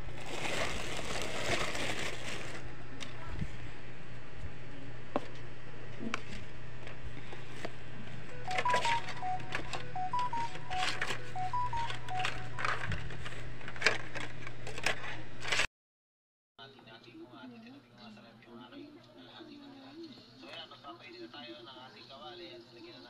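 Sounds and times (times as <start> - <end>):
electronic beeping tune: 8.3 - 13.0.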